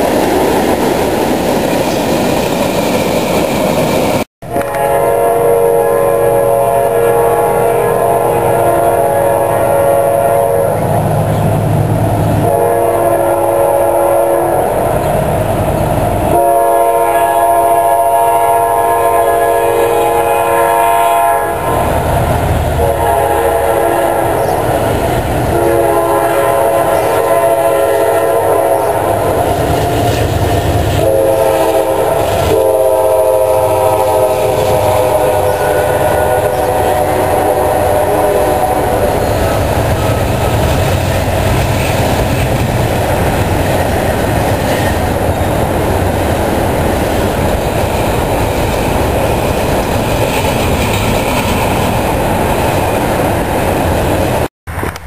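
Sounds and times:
diesel train rumble: 0.0s - 55.0s
locomotive air horn blasts: 4.4s - 11.4s, 12.4s - 15.0s, 16.2s - 30.1s, 30.9s - 42.2s.

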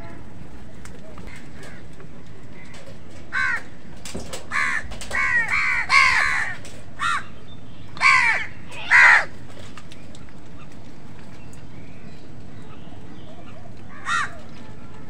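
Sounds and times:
crows cawing: 1.1s - 3.8s, 4.4s - 7.4s, 8.0s - 9.5s, 13.4s - 14.6s.

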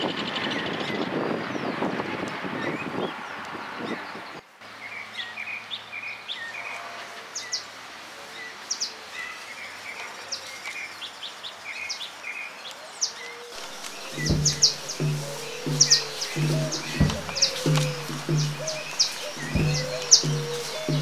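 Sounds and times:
faint outdoor background noise: 0.0s - 21.0s
small birds chirping: 8.4s - 21.0s
music: 13.6s - 21.0s.

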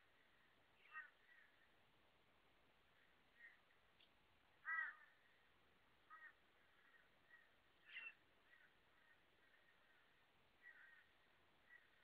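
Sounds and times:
crows cawing: 0.2s - 1.6s, 3.4s - 3.6s, 4.6s - 5.4s, 6.1s - 12.0s.

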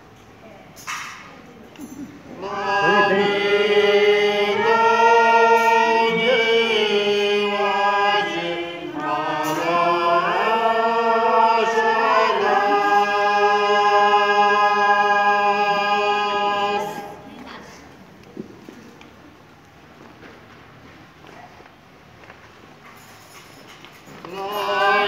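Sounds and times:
group singing in unison: 2.3s - 17.3s, 24.2s - 25.0s.

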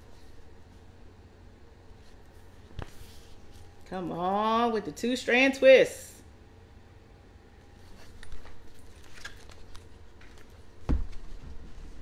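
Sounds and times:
book handling clicks and rustles: 7.9s - 12.0s.

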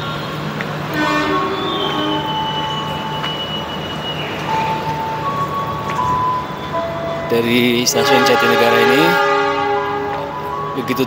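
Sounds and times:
train horn: 0.0s - 4.4s, 6.8s - 11.0s
high-pitched train squeals: 0.0s - 11.0s.

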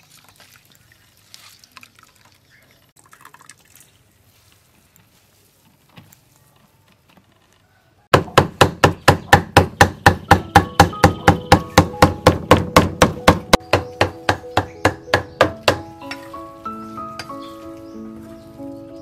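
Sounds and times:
cleaver chopping meat on wood: 8.1s - 15.9s.

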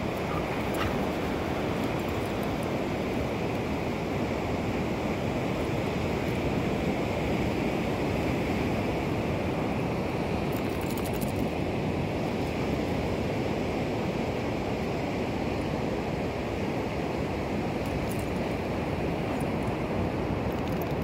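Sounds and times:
ocean surf rushing: 0.0s - 10.4s.

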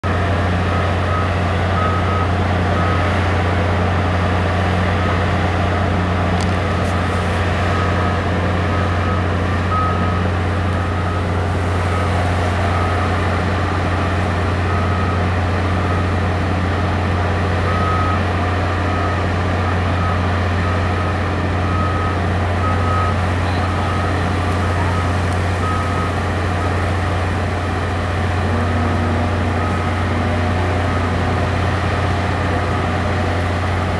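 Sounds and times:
heavy engine droning: 0.0s - 33.9s
backup alarm beeping: 1.1s - 3.0s, 7.7s - 13.2s, 14.6s - 16.1s, 17.7s - 18.2s, 18.9s - 26.9s, 28.4s - 31.5s.

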